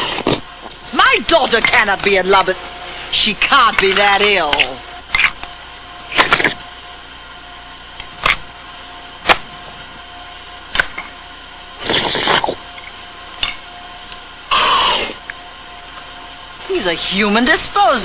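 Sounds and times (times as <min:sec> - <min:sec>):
noisy eating mouth noises: 0:00.0 - 0:00.9, 0:06.1 - 0:06.7, 0:11.8 - 0:12.6.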